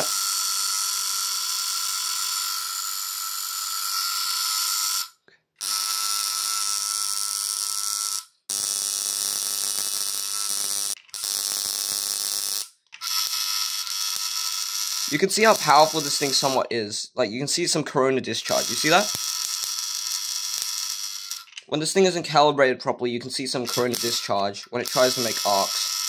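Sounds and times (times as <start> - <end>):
sparks hissing: 8.6 - 16.7, 18.4 - 21.5, 23.7 - 26.0.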